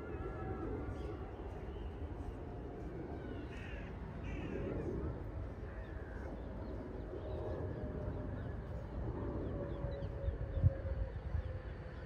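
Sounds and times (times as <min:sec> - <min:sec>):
jet airliner rumbling overhead: 0:00.0 - 0:12.0.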